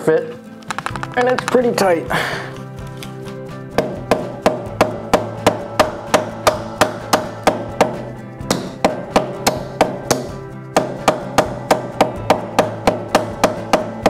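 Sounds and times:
mallet knocking on plastic: 3.8 - 14.0.

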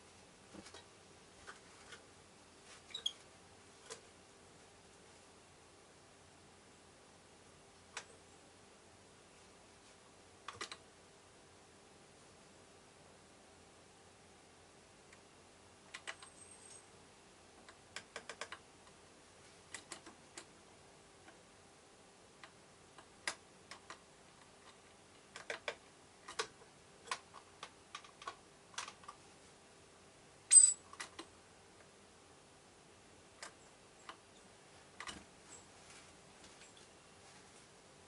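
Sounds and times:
faint hum: 0.0 - 38.0
bird pecking clicks and taps: 17.6 - 18.6.

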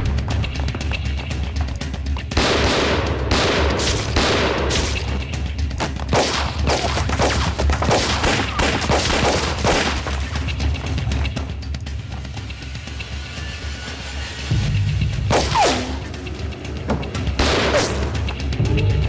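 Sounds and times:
background music: 0.0 - 19.0
bullets striking stone wall: 2.3 - 10.4
pistol shots: 2.4 - 5.2, 6.1 - 10.2, 15.3 - 16.0, 17.4 - 18.1.

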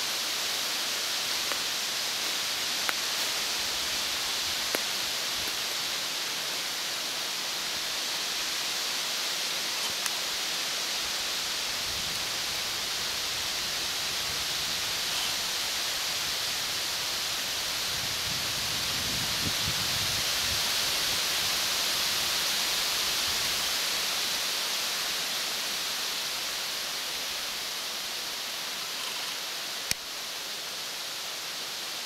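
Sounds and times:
steady outdoor background hiss: 0.0 - 32.0.

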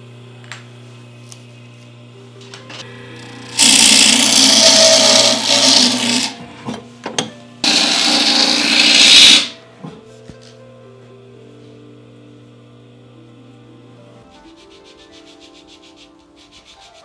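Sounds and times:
small electric motor spinning: 2.8 - 6.4, 7.6 - 9.6.

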